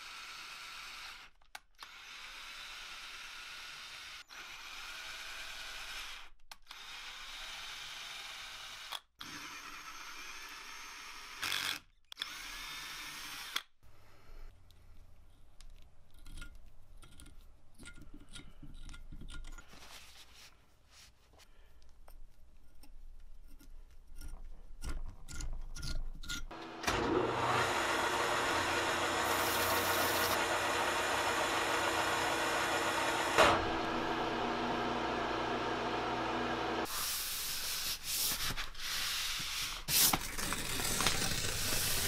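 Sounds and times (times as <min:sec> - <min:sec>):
metal lathe motor hum: 0:26.5 - 0:36.9
sanding sound: 0:36.8 - 0:40.2.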